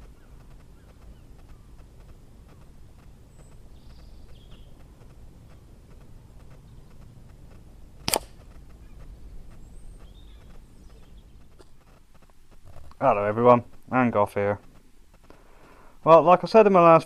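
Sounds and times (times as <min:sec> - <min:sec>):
faint birds chirping: 0:00.0 - 0:17.0
air rifle shot crack: 0:08.0 - 0:08.5.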